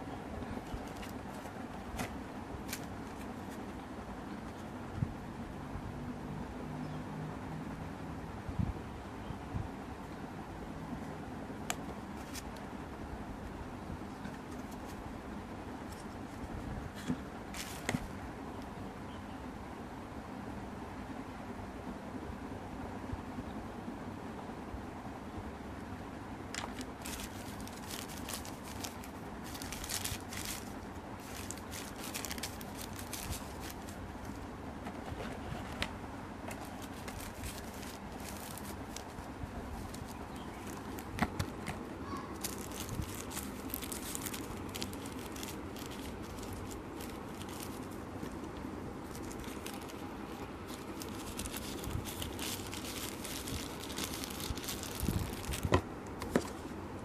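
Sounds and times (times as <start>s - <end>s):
plastic and paper rustling: 0.4s - 3.8s, 11.7s - 12.7s, 14.1s - 15.0s, 15.8s - 18.2s, 26.6s - 56.6s.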